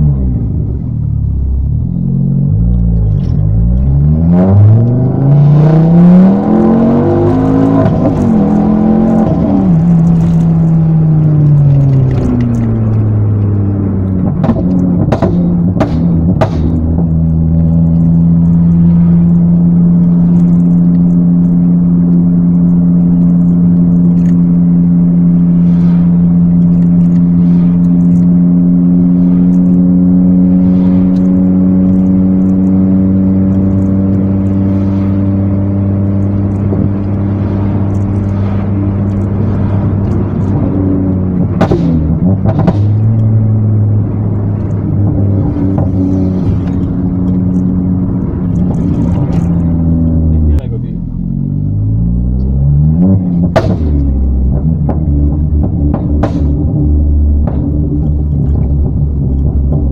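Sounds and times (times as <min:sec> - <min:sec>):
car engine droning at cruise: 0:00.0 - 0:59.9
sharp engine knocks: 0:14.2 - 0:17.1, 0:41.4 - 0:43.2, 0:53.4 - 0:59.9.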